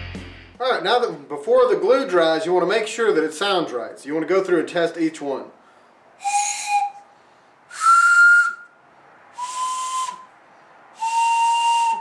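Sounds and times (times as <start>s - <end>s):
wooden train whistle blasts: 6.2s - 7.1s, 7.7s - 8.7s, 9.4s - 10.3s, 11.0s - 12.0s.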